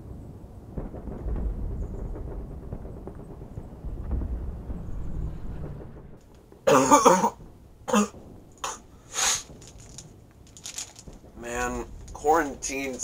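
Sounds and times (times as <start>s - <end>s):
man coughing: 6.7s - 8.8s.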